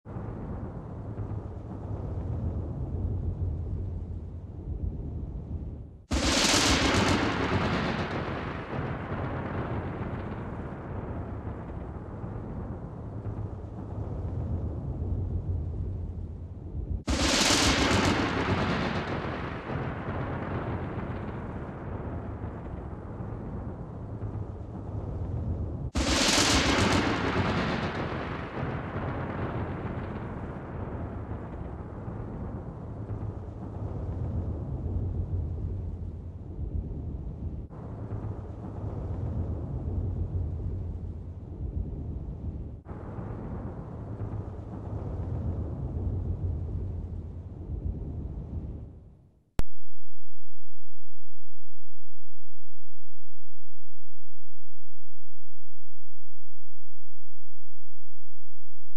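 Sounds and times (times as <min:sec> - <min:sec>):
thunderclap with rolling rumble: 0:00.1 - 0:49.7
low background rumble: 0:00.1 - 0:58.9
loud crackling boom: 0:06.0 - 0:16.0, 0:16.7 - 0:49.8.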